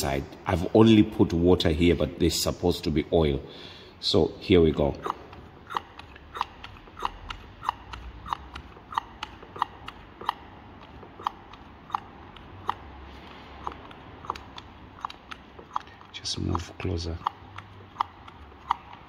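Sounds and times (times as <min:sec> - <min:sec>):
hand vacuum pump clicking and squeaking: 0:05.0 - 0:19.0.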